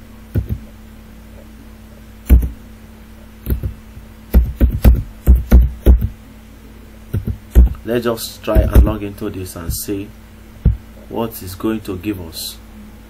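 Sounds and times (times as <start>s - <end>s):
faint steady hum: 0.0s - 13.0s
keyboard keystrokes: 3.4s - 3.7s, 7.2s - 7.7s.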